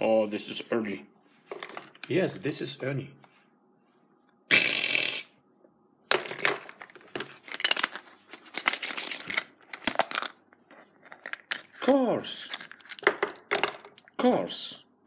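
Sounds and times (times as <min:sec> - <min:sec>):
plastic capsules clicking together: 0:12.6 - 0:14.2.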